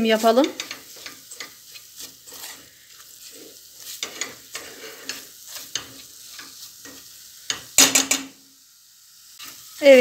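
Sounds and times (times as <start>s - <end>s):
spatula scraping a steel pot: 0.0s - 7.7s
oil sizzling: 0.0s - 10.0s.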